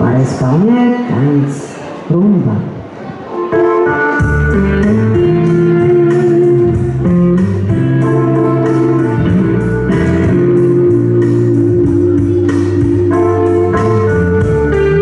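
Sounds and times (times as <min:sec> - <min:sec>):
latin dance music with guitar: 0:03.4 - 0:15.0.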